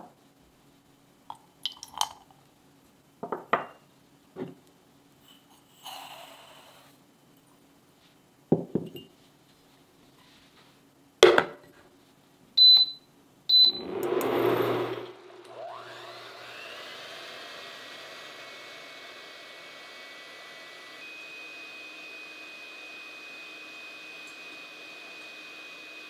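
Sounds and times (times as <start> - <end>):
kitchenware knocking on wooden table: 3.2 - 3.8
short rush of noise: 13.5 - 15.8.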